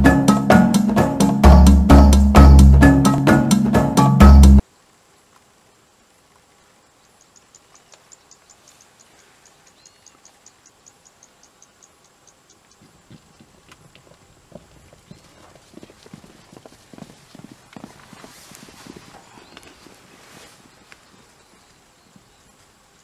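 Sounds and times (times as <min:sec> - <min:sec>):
hoofbeats galloping on dry ground: 0:12.6 - 0:23.0.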